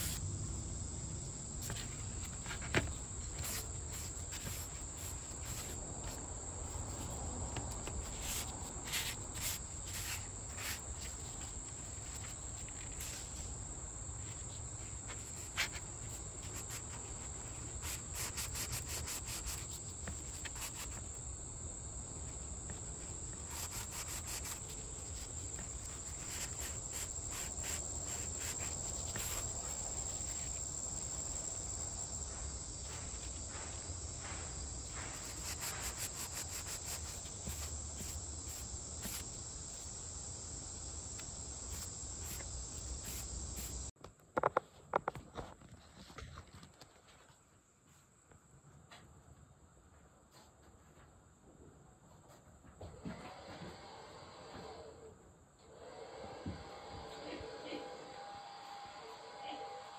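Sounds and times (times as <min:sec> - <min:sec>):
insects chirring: 0:00.0 - 0:45.5.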